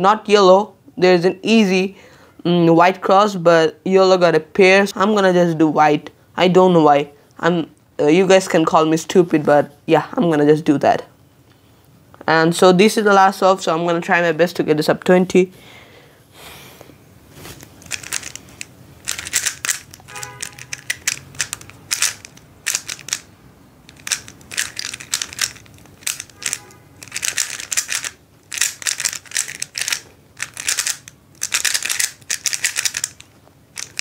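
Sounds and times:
puzzle cube clicking turns: 17.6 - 34.0.

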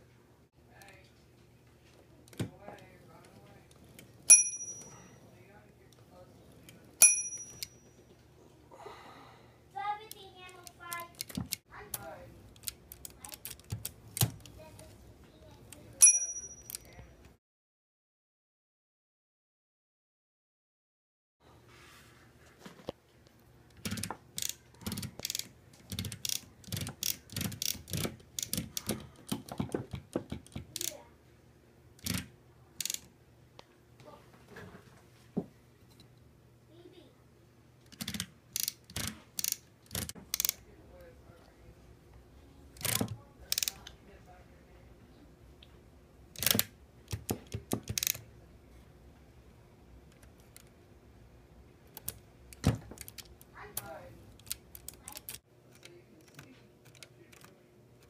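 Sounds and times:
typewriter mechanism clacking: 46.4 - 48.2.

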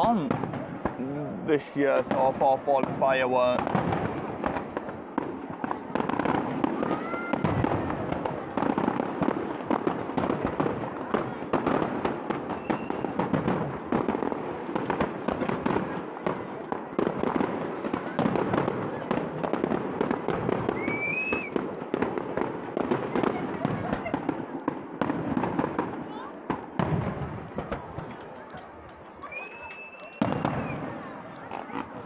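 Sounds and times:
fireworks bangs and crackles: 0.0 - 32.0.

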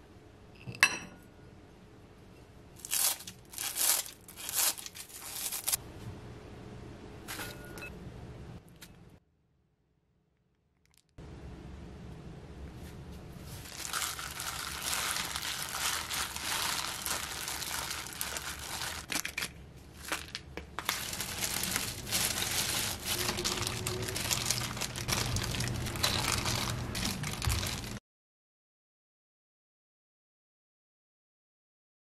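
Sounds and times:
plastic glove crinkling: 2.8 - 5.8, 13.4 - 28.0.

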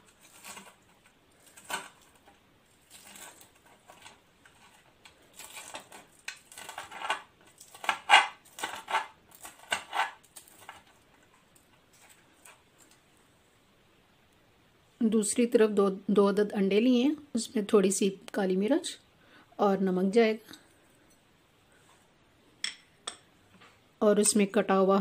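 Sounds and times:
knife cutting crunchy fried chicken: 0.1 - 2.1, 2.8 - 10.9.

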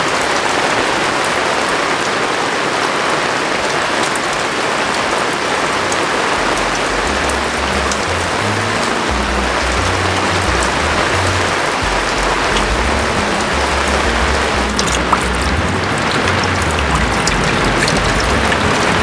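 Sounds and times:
heavy rain pouring: 0.0 - 19.0
background music bass line: 6.3 - 19.0.

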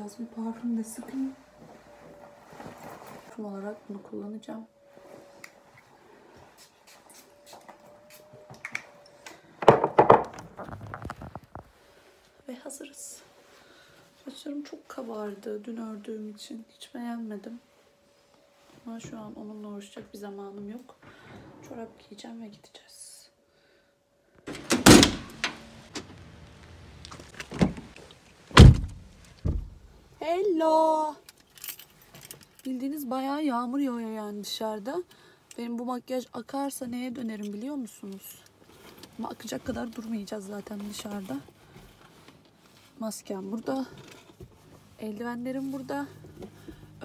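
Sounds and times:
car door thumping shut: 24.6 - 25.4, 28.5 - 29.8
knocks and clunks in car: 28.6 - 29.8.

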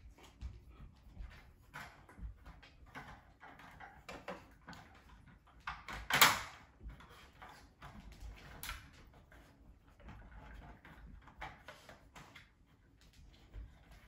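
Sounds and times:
plastic toys clicking on wooden floor: 1.7 - 6.8.

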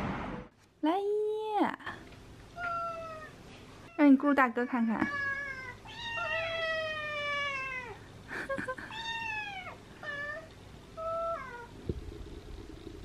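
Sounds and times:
cat meowing: 2.6 - 8.0.

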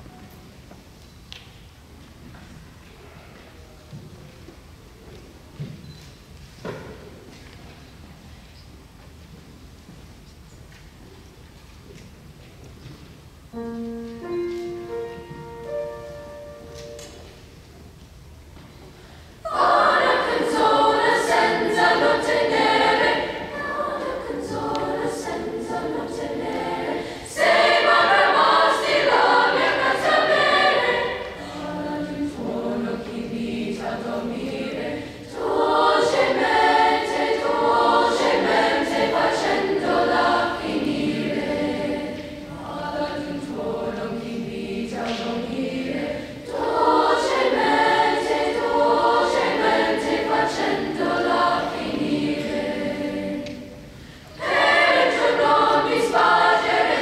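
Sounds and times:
held piano notes: 13.5 - 17.6
children's choir singing: 19.4 - 57.0.

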